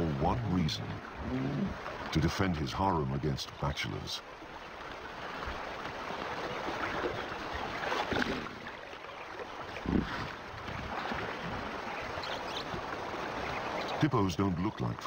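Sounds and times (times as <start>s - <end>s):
water sloshing and splashing: 4.2s - 15.0s.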